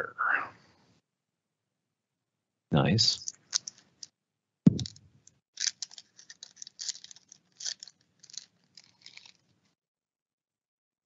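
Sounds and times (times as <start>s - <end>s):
foil wrapper crinkling: 5.6s - 9.5s.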